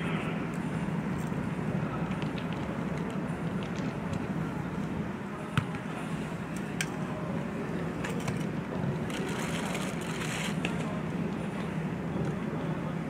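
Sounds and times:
low background hum: 0.0s - 13.0s
football being kicked: 5.5s - 5.8s.

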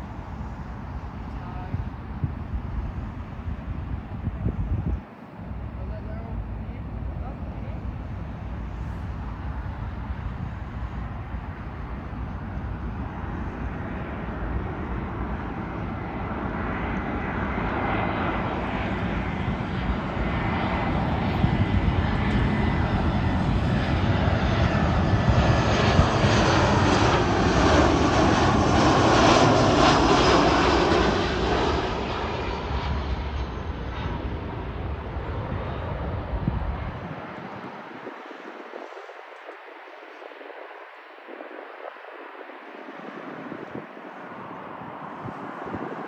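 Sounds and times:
jet airliner flying past: 0.0s - 46.0s.

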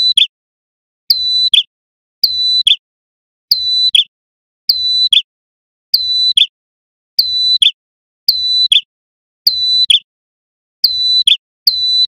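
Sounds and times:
bird singing whistled call: 0.0s - 0.4s, 1.1s - 2.8s, 3.5s - 4.1s, 4.7s - 5.3s, 6.0s - 6.6s, 7.2s - 10.1s, 10.8s - 12.0s.

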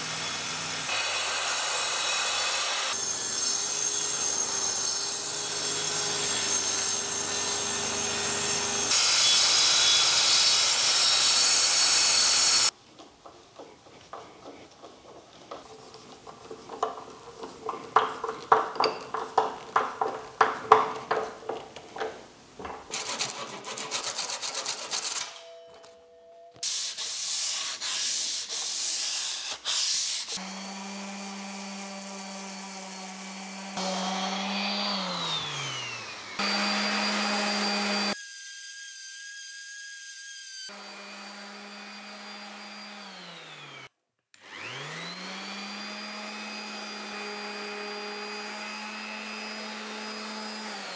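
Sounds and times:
power tool motor running: 0.0s - 12.7s, 30.4s - 38.3s, 40.7s - 50.9s
rhythmic hand tool strokes: 0.0s - 22.1s, 22.9s - 25.4s, 45.5s - 50.9s.

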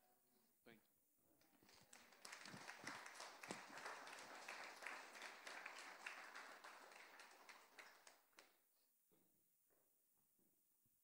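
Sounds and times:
faint applause: 1.4s - 8.6s.

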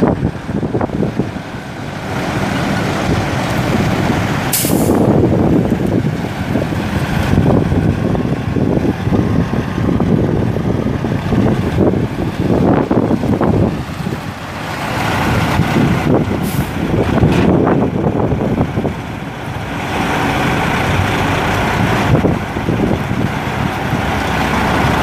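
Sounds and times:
diesel engine running: 0.0s - 25.0s
air brake hiss: 4.5s - 5.0s.

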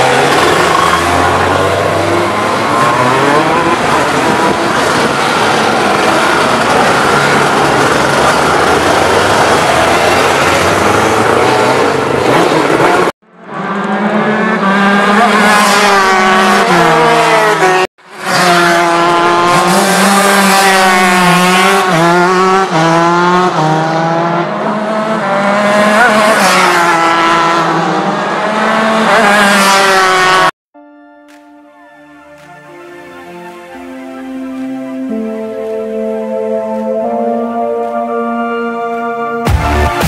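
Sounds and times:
racing kart engine running hard: 0.0s - 30.5s.

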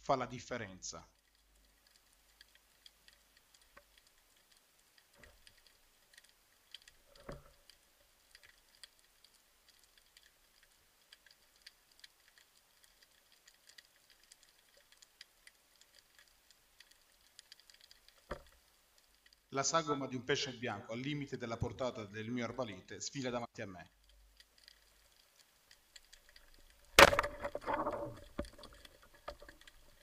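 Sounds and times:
faint underwater clicks and crackles: 0.0s - 30.0s.

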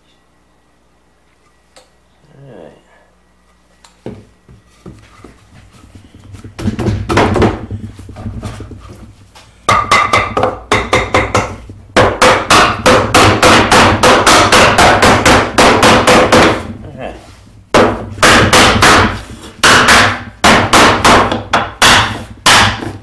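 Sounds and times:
hammer striking wood block: 9.7s - 16.7s, 17.7s - 23.0s.

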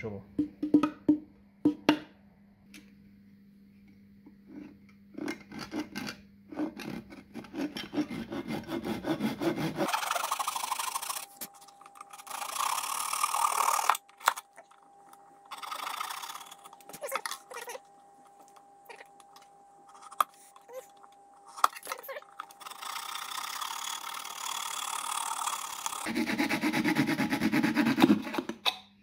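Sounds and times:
handsaw cutting wood: 5.4s - 14.6s, 15.5s - 17.8s, 21.6s - 28.5s.

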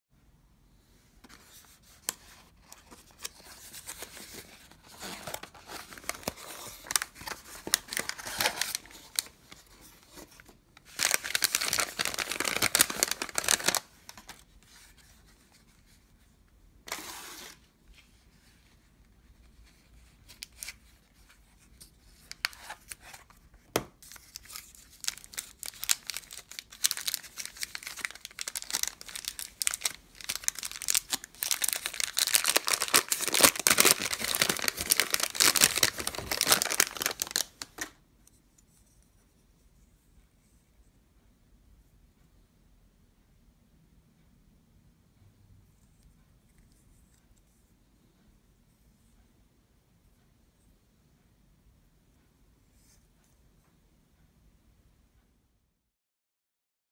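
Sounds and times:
tissue paper crinkling: 1.6s - 15.6s, 24.0s - 37.9s
paper rustling and tearing: 24.0s - 37.9s.

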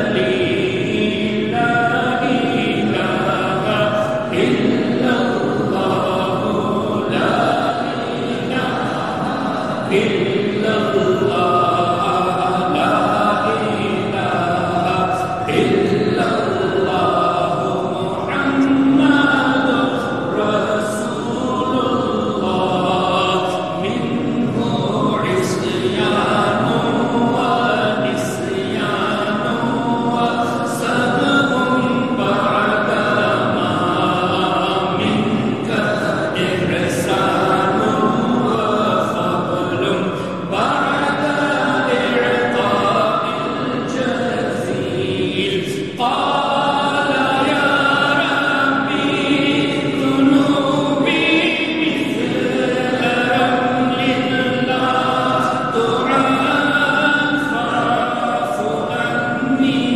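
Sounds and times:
group of voices chanting: 0.0s - 59.9s.

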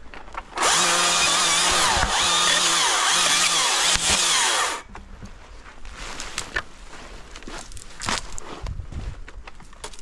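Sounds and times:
battery chainsaw cutting branches: 0.5s - 4.9s.

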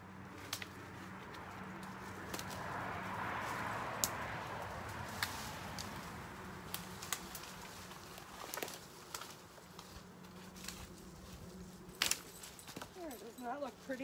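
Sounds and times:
dry twigs snapping: 0.4s - 2.8s, 3.5s - 11.0s, 12.0s - 12.9s
branch dragged over dry leaves: 4.6s - 14.0s.

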